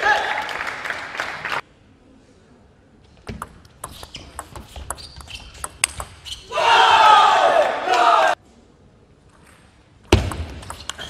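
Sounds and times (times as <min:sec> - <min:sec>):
table tennis ball clicking: 0:03.3 - 0:06.2
loud shouting: 0:06.5 - 0:08.4.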